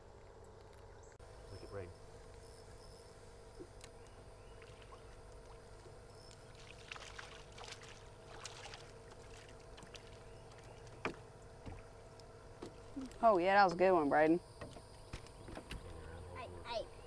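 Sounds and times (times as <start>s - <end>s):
faint steady hum: 0.0s - 17.0s
fish splashing in water: 4.5s - 13.2s.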